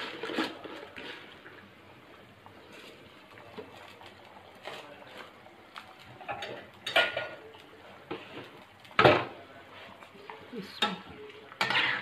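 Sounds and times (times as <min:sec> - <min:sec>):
spoon and bowl clinking on pot: 0:06.3 - 0:07.4.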